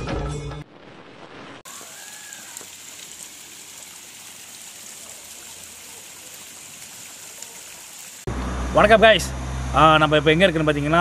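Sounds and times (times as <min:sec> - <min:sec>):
waterfall splashing onto stones: 0:01.2 - 0:08.3.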